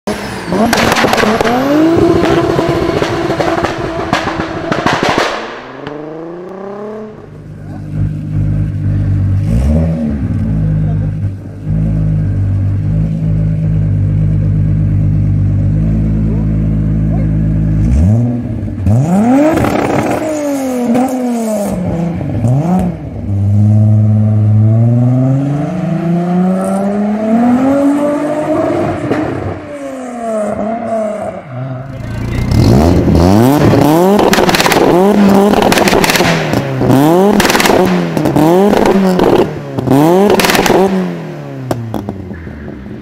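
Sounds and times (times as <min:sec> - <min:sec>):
car engine idling and revving: 0:00.0 - 0:43.0.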